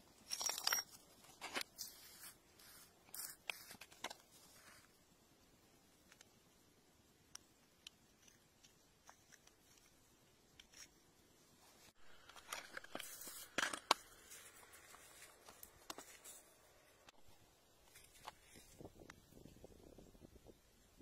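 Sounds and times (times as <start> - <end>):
stones and soil scraping: 11.9 - 16.7.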